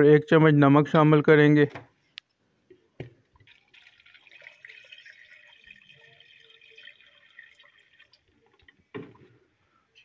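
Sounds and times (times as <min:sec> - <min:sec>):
water splashing into a pot: 0:03.4 - 0:09.2.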